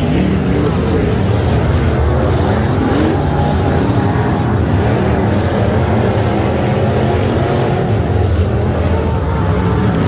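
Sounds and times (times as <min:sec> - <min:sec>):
race car engines running hard: 0:00.0 - 0:10.0.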